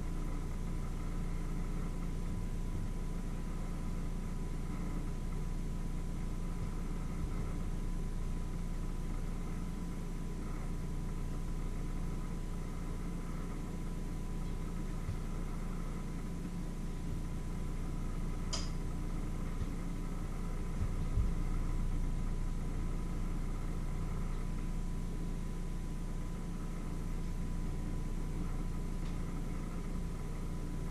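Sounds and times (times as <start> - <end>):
low machine hum: 0.0 - 30.9
sharp click: 18.5 - 18.8.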